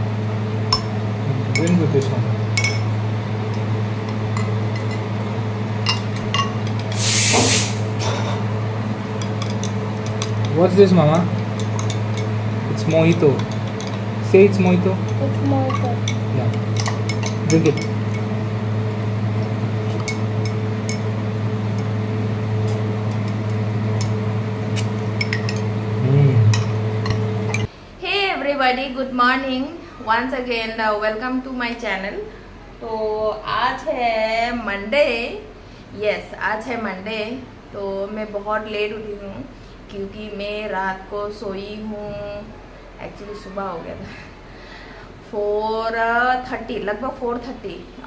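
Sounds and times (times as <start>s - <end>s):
steady low hum: 0.0s - 48.0s
spoons clinking against glasses: 5.9s - 7.6s, 15.0s - 18.2s, 25.2s - 25.7s
short loud hiss: 6.9s - 8.0s.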